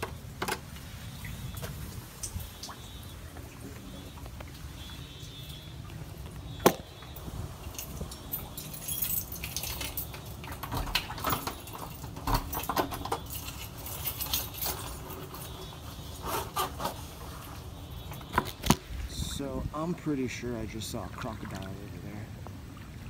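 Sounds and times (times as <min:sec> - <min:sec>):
keys jangling in door lock: 0:07.7 - 0:15.7.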